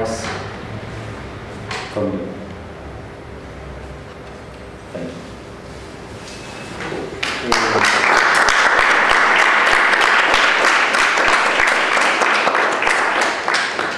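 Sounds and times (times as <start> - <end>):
audience applauding: 7.2 - 13.9.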